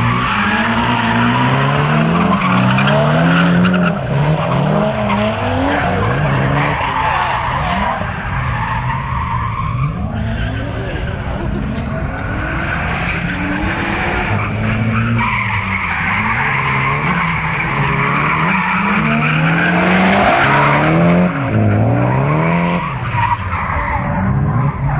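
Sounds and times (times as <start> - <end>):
car engine revving: 0.0 - 24.9
tyres squealing: 0.2 - 24.9.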